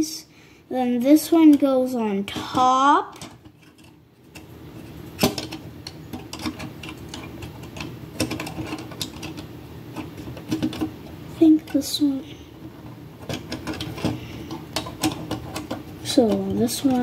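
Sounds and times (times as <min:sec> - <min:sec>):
plastic pieces clicking and rattling: 0:02.3 - 0:04.5, 0:05.2 - 0:11.0, 0:12.7 - 0:17.0.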